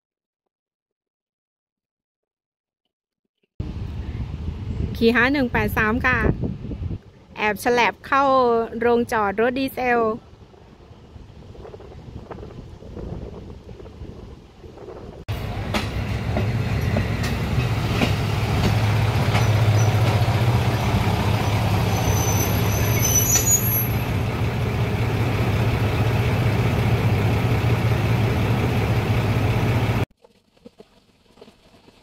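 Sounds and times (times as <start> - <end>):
diesel engines droning: 15.3 - 30.0
train wheels clicking on rails: 15.3 - 30.0
high squeal: 21.4 - 24.1.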